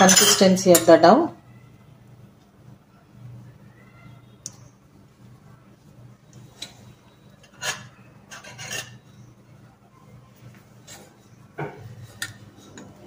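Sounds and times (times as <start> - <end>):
low steady hum: 0.0 - 13.0
hand scraping dough in steel bowl: 7.5 - 9.2.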